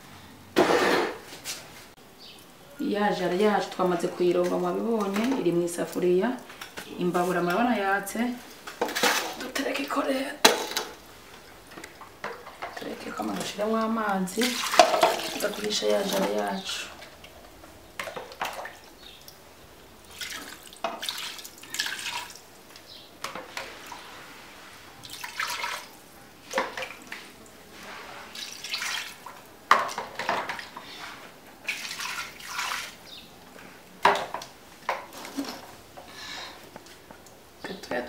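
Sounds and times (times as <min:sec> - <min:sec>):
water splashing and pouring: 0:14.4 - 0:16.5, 0:20.0 - 0:22.6, 0:25.0 - 0:30.1, 0:31.6 - 0:33.0.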